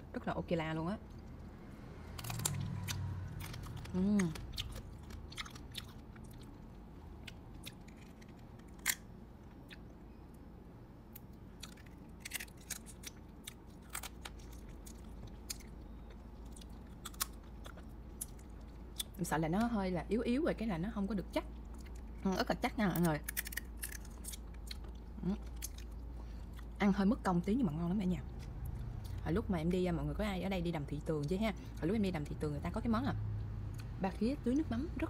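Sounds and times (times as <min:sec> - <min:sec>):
chewing and biting crab legs: 0:02.0 - 0:10.0, 0:11.1 - 0:19.2, 0:23.0 - 0:26.8
crab shell cracking: 0:07.2 - 0:09.1, 0:11.2 - 0:15.7, 0:16.5 - 0:18.4, 0:23.0 - 0:24.9.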